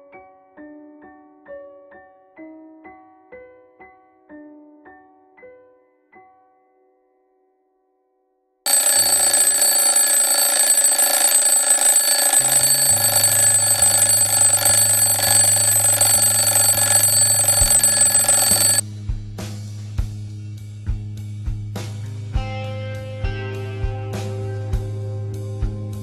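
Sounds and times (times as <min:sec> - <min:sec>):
alarm clock bells ringing: 0:08.7 - 0:18.8.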